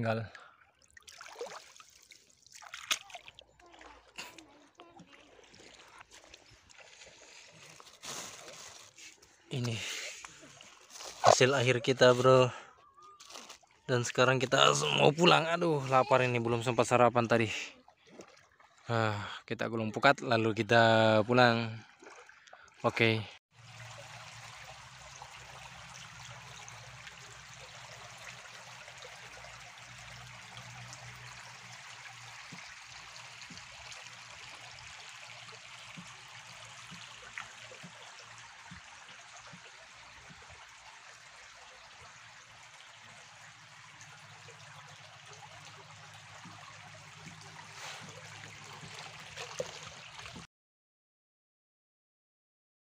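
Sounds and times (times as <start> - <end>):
water trickling over sand: 0.9 - 12.3, 13.2 - 15.0, 23.6 - 50.4.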